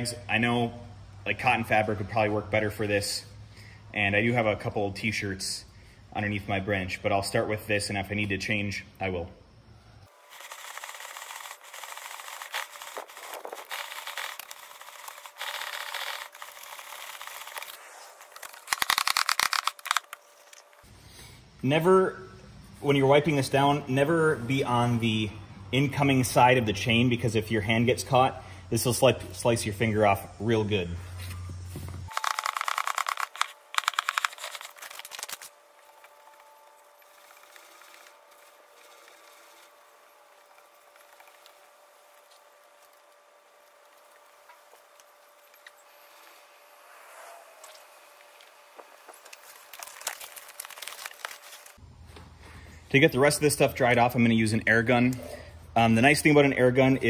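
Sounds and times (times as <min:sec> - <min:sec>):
brush scrubbing chain: 0:10.2 - 0:19.9
rapid rattling clicks: 0:18.4 - 0:20.2, 0:32.1 - 0:35.5.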